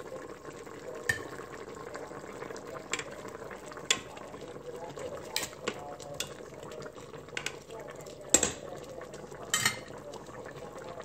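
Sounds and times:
metal tongs clinking on pot: 0:01.1 - 0:01.3, 0:05.2 - 0:06.4, 0:09.4 - 0:10.0.

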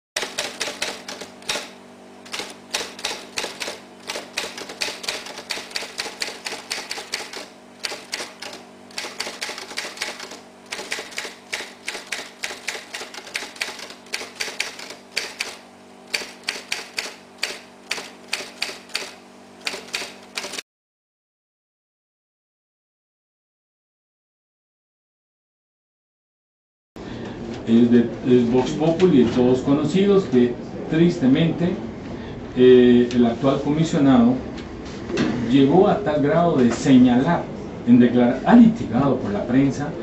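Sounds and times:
typewriter keys clacking: 0:00.2 - 0:20.6.

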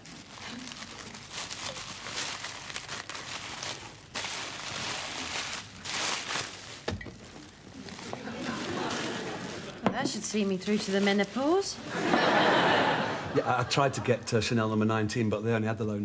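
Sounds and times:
tissue paper crinkling: 0:00.0 - 0:12.0.

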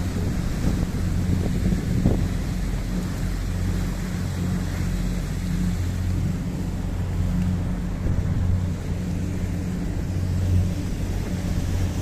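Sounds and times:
boat engine humming: 0:00.0 - 0:12.0
wind and water hiss: 0:00.0 - 0:12.0.

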